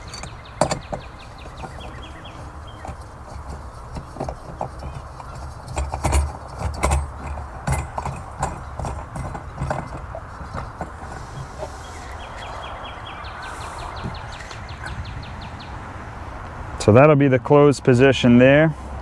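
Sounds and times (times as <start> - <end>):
metal knocks and clicks: 0.0 - 12.5.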